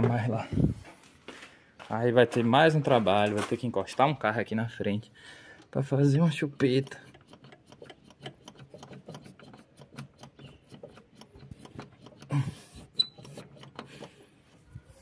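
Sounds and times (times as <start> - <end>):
hand pump clicking and rubbing: 4.7 - 15.0.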